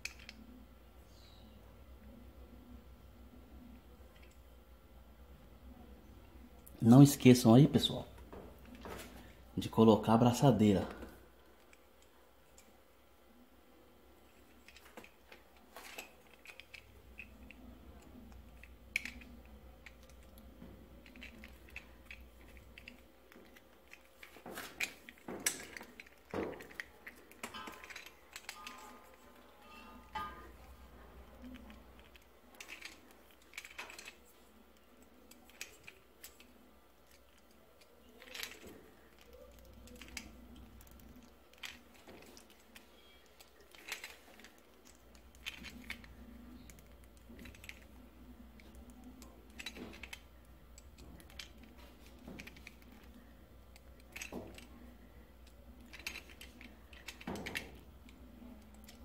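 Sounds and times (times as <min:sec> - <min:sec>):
small handling clicks and knocks: 0:14.3 - 0:30.6, 0:31.2 - 0:59.0.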